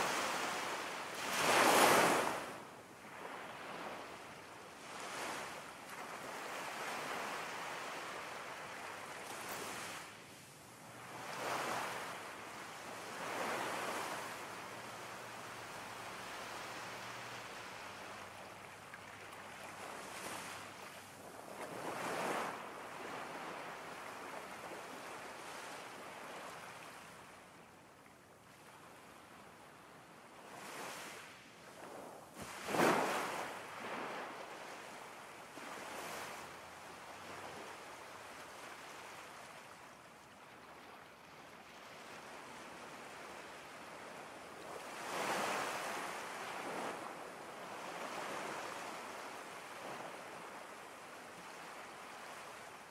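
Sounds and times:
ocean surf: 0.0s - 4.0s
waves breaking: 0.0s - 4.1s, 32.4s - 34.8s.

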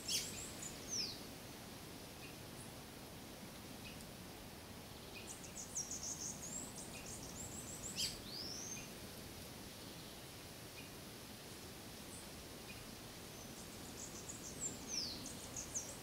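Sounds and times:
small bird singing: 0.0s - 1.2s, 5.0s - 8.9s, 12.7s - 16.0s
background hiss: 0.0s - 16.0s.

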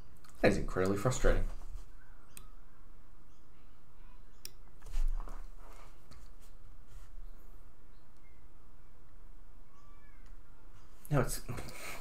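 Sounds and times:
low electrical hum: 0.0s - 12.0s
faint high chirp: 1.9s - 4.8s, 7.2s - 11.0s.

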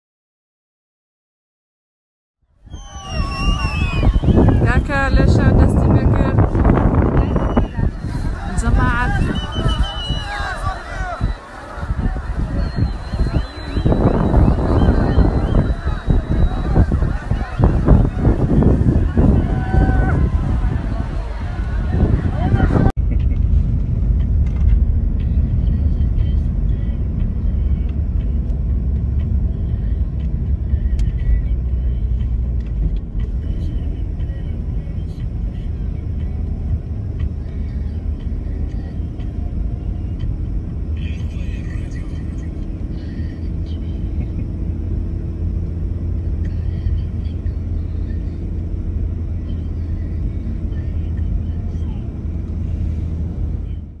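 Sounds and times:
road and engine rumble in car: 2.5s - 54.0s.

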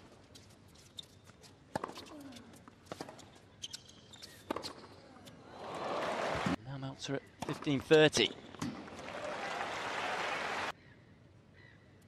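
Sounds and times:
tennis ball bouncing on court: 1.7s - 2.1s, 8.5s - 9.0s.

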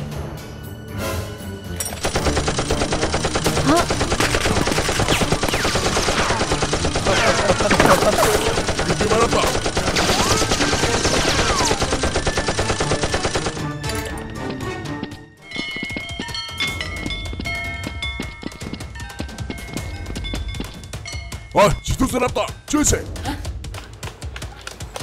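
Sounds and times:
machine gun fire: 2.0s - 13.6s.

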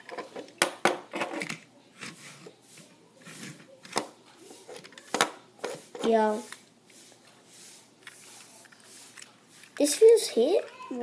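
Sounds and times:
soft rubbing: 2.0s - 10.7s.

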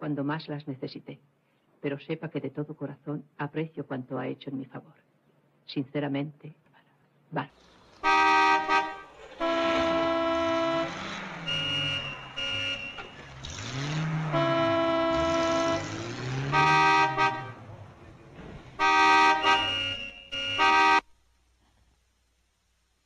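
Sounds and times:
car horns honking: 8.0s - 21.1s
low engine-like tone: 8.8s - 20.7s.

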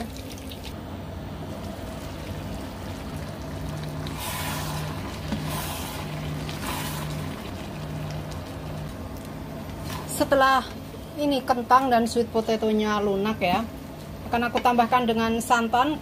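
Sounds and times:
pot bubbling and hissing: 0.0s - 11.5s.

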